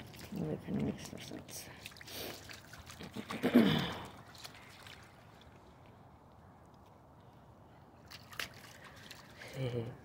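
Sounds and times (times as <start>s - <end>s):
dog splashing through puddle: 0.0s - 5.8s, 8.0s - 9.6s.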